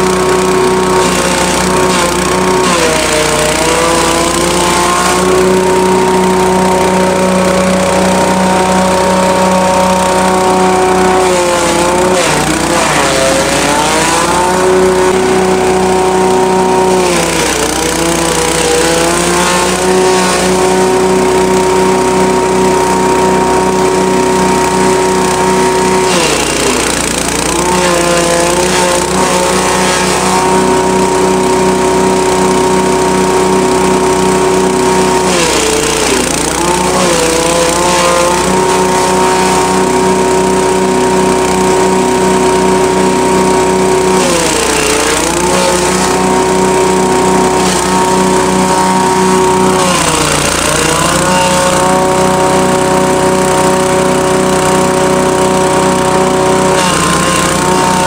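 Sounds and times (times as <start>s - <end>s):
grass chopper engine running: 0.0s - 58.0s.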